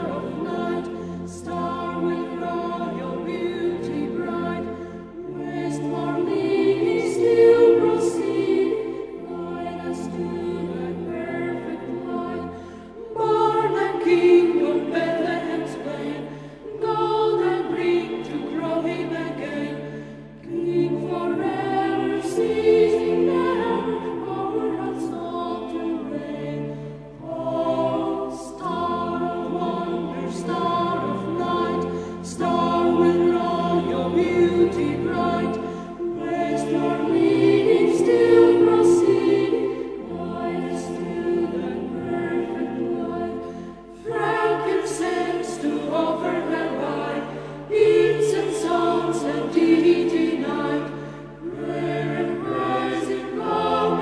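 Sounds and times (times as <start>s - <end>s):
choir singing sustained chords: 0.0s - 54.0s.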